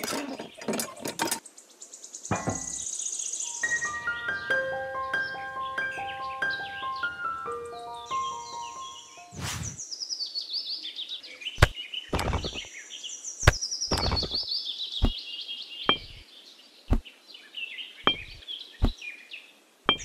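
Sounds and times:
birds chirping: 0:00.0 - 0:20.0
clay bricks clicking and knocking: 0:11.6 - 0:12.7, 0:13.4 - 0:14.4, 0:15.9 - 0:16.2, 0:18.1 - 0:19.0.

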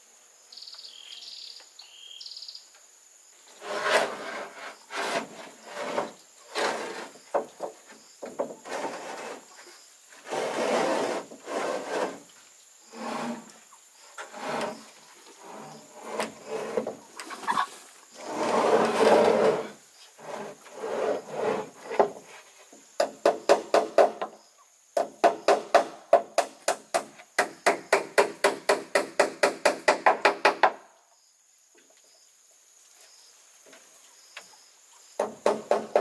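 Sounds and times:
rasping strokes on wood: 0:03.6 - 0:07.4, 0:08.6 - 0:09.5, 0:10.2 - 0:12.3, 0:12.9 - 0:13.6, 0:14.2 - 0:17.0, 0:18.2 - 0:22.1.

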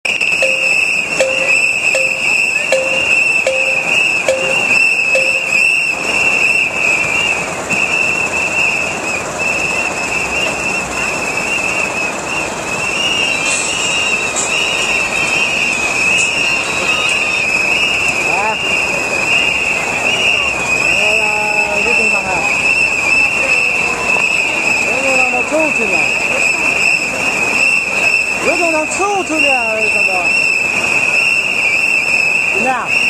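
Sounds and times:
short lower whistle note: 0:00.1 - 0:08.7
many whistles blowing: 0:00.1 - 0:33.0.

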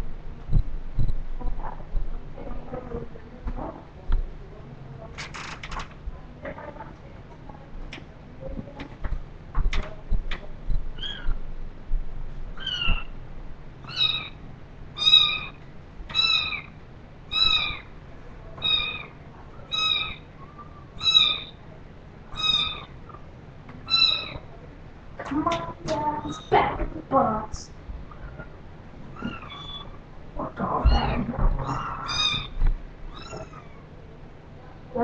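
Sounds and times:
kitten meowing: 0:12.6 - 0:13.1, 0:13.8 - 0:14.4, 0:15.0 - 0:16.7, 0:17.3 - 0:17.9, 0:18.6 - 0:19.1, 0:19.7 - 0:20.2, 0:21.0 - 0:21.5, 0:22.3 - 0:22.9, 0:23.9 - 0:24.4, 0:29.1 - 0:29.9, 0:30.8 - 0:33.8.

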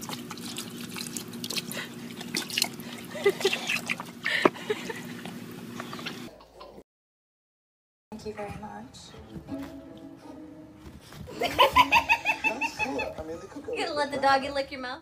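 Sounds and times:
water trickling and splashing: 0:00.0 - 0:04.4
dog lapping water: 0:00.0 - 0:05.4.

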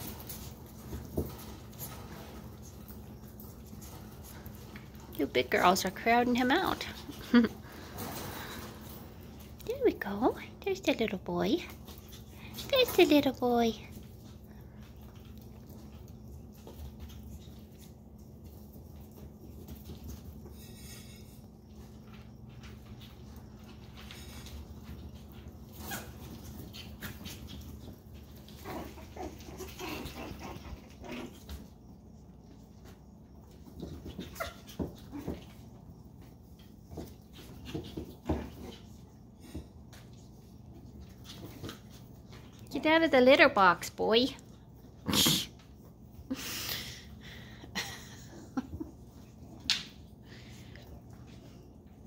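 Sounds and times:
puppies scuffling on tile: 0:00.0 - 0:52.0
puppies growling and yipping: 0:25.7 - 0:32.0.

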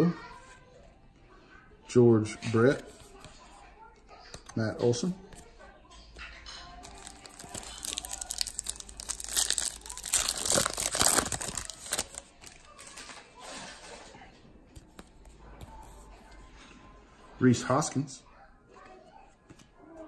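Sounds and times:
soft handling of cards: 0:04.3 - 0:16.8, 0:18.8 - 0:20.0
card pack wrapper crinkling and tearing: 0:06.8 - 0:13.2.

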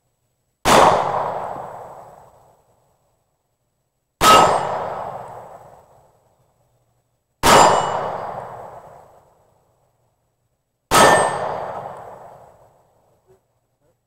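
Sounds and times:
steel target ringing: 0:04.2 - 0:04.8, 0:07.4 - 0:08.4, 0:10.9 - 0:11.8.

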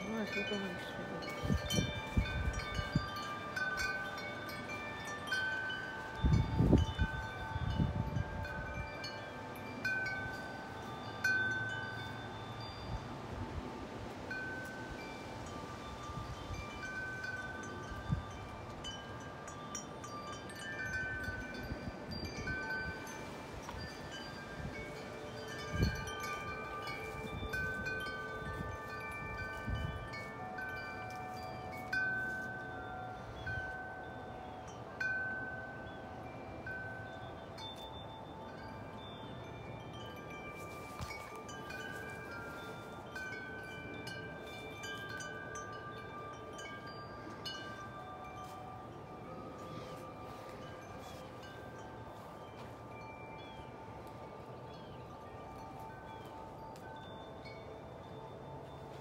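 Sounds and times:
wind gusts on microphone: 0:00.0 - 0:34.1
metal wind chime ringing: 0:00.0 - 0:59.0.

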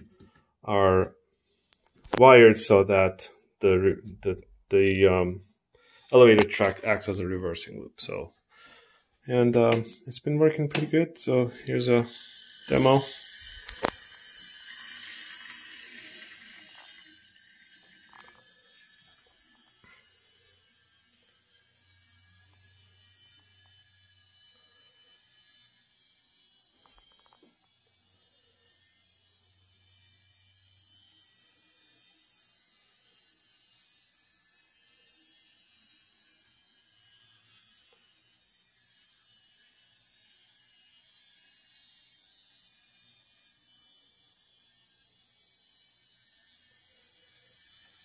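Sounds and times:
model train motor whirring: 0:10.8 - 0:48.0.

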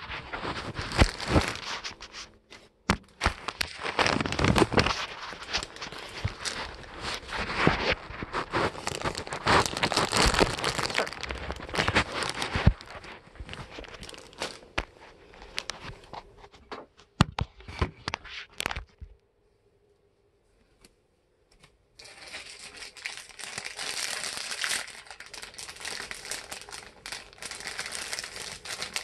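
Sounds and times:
plastic bag crinkling: 0:00.0 - 0:16.3, 0:22.0 - 0:29.0.

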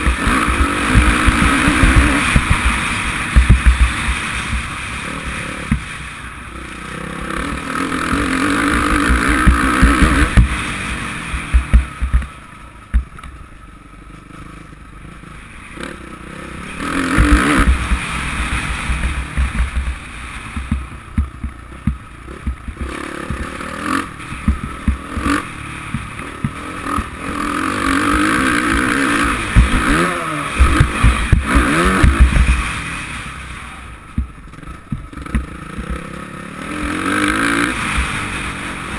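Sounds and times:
motocross engine revving: 0:00.0 - 0:13.0, 0:13.9 - 0:38.9
short thuds: 0:03.4 - 0:04.7, 0:11.3 - 0:13.2, 0:18.9 - 0:23.5.

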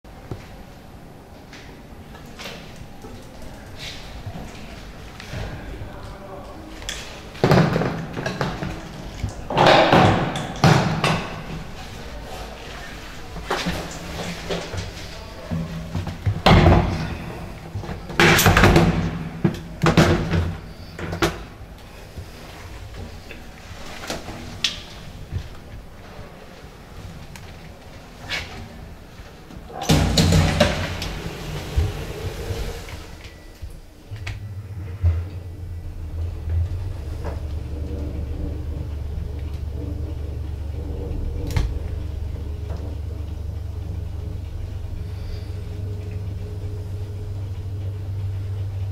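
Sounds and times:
elevator motor hum: 0:00.1 - 0:48.9
elevator clunks: 0:06.9 - 0:12.1, 0:29.5 - 0:48.9.

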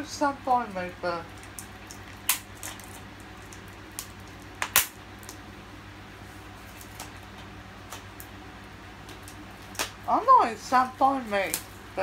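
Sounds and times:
plastic packaging clicks and crackles: 0:01.3 - 0:05.4.

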